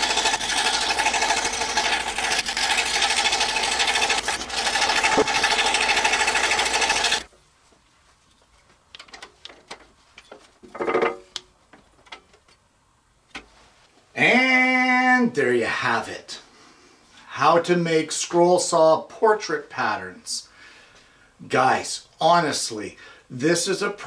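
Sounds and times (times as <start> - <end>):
scroll saw buzzing: 0.0 - 7.3.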